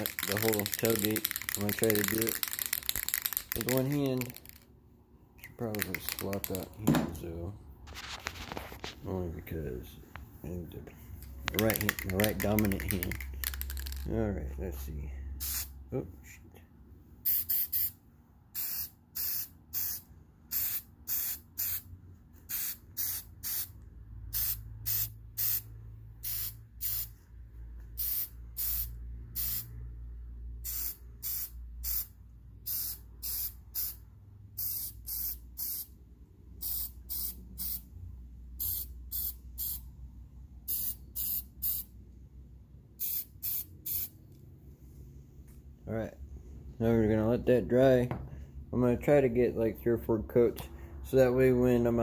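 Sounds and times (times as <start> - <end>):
spray paint can hissing: 0.0 - 4.6, 5.7 - 6.7, 11.6 - 14.0, 15.4 - 15.7, 17.3 - 17.9, 18.6 - 21.8, 22.5 - 23.7, 24.3 - 25.6, 26.2 - 27.1, 28.0 - 29.7, 30.6 - 34.0, 34.6 - 35.9, 36.6 - 37.8, 38.6 - 39.8, 40.7 - 41.9, 43.0 - 44.1.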